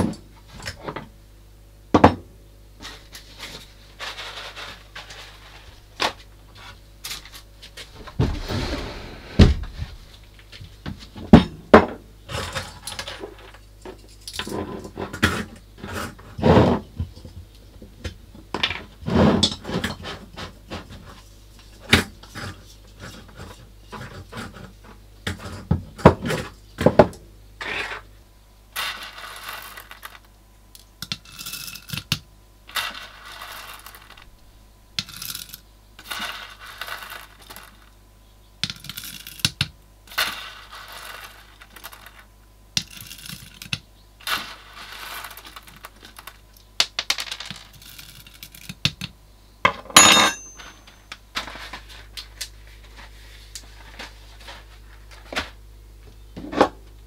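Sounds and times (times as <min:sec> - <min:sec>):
coffee beans rattling into grinder: 0:28.8 - 0:30.3, 0:31.0 - 0:34.3, 0:35.0 - 0:37.9, 0:38.6 - 0:48.9
sharp ringing clink: 0:50.0 - 0:51.0.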